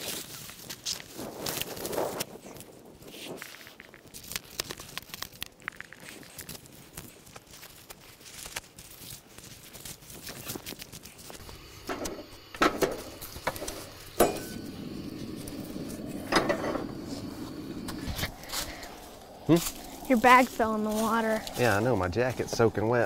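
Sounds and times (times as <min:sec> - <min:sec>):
rustling in dry leaves: 0:00.0 - 0:16.2, 0:16.8 - 0:23.0
camp stove burner hissing: 0:11.2 - 0:23.0
metal skillet clanking: 0:11.8 - 0:14.8.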